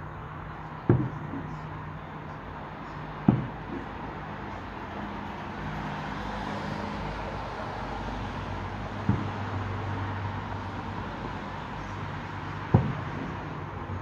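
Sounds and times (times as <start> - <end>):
city traffic noise: 0.0 - 14.0
distant firework booms: 12.7 - 13.4.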